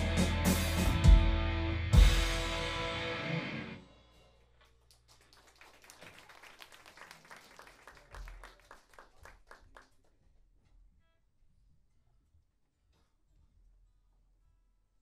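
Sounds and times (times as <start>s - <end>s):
faint audience clapping: 4.6s - 10.2s.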